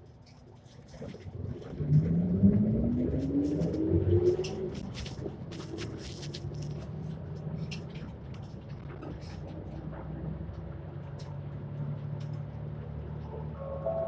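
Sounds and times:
bus diesel engine idling: 12.3s - 14.0s.

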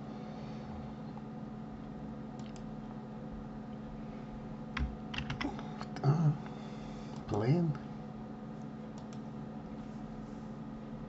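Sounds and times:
steady low hum: 0.0s - 11.0s
computer keyboard clicks: 2.4s - 2.7s, 4.8s - 5.9s, 9.0s - 9.2s.

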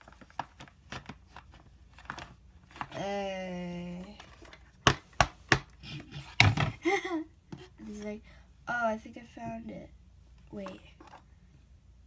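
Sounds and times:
child humming puzzled: 3.0s - 4.2s.

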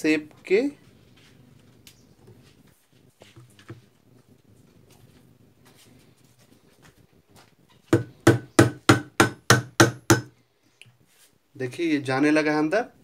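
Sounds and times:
hammer striking metal rod: 8.0s - 10.3s.

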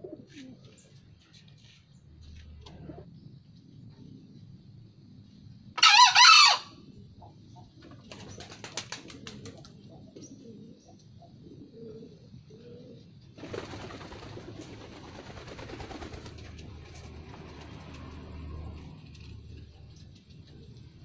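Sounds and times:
junglefowl crowing: 5.8s - 6.8s.

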